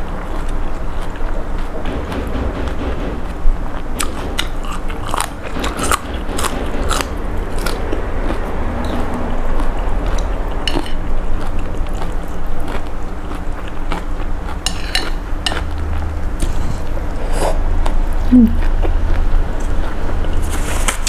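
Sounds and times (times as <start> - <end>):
steady low rumble: 0.0 - 20.7
chewing noodles: 9.6 - 15.8.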